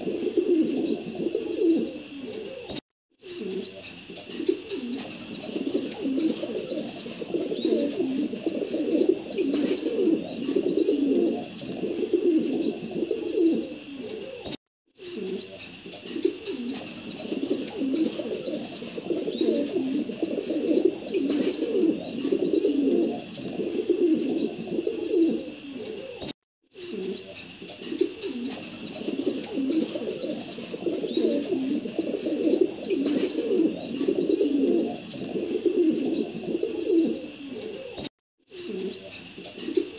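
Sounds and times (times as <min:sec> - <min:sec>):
pigeons cooing: 0:00.0 - 0:39.9.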